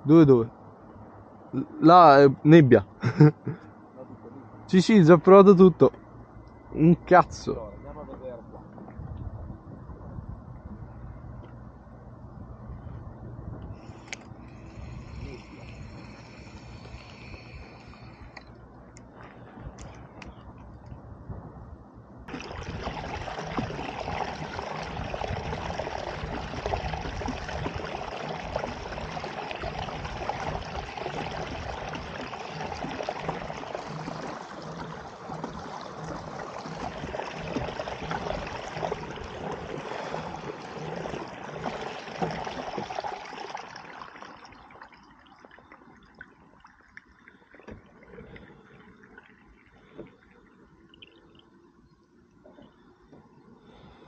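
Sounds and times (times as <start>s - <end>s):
water rushing along a hull: 13.7s - 20.6s, 22.2s - 54.0s.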